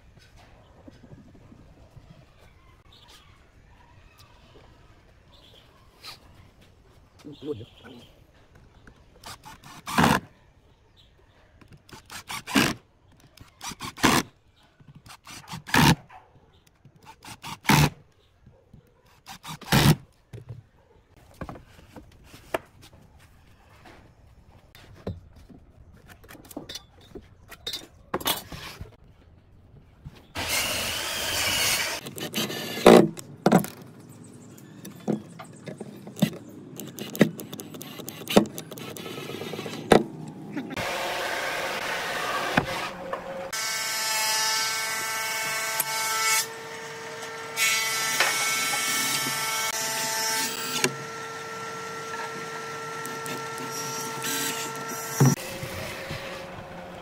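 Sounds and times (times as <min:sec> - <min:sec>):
cordless power driver running: 0:50.6 - 0:57.0.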